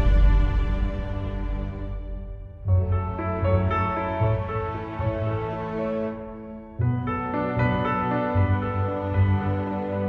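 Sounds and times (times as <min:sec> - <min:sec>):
instrumental background music: 0:00.0 - 0:10.0.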